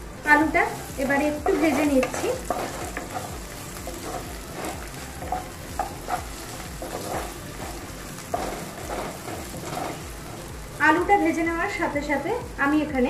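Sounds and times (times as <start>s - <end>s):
potatoes sizzling in hot oil: 0.0s - 13.0s
wooden spatula scraping pan: 0.7s - 10.5s.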